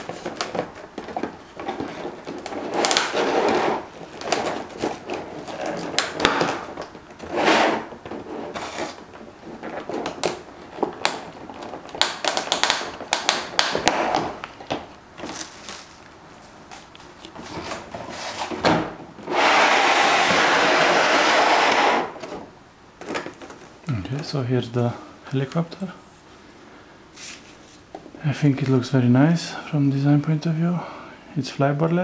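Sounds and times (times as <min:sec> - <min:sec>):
plastic packaging crinkling: 0:00.0 - 0:18.5, 0:23.0 - 0:24.2.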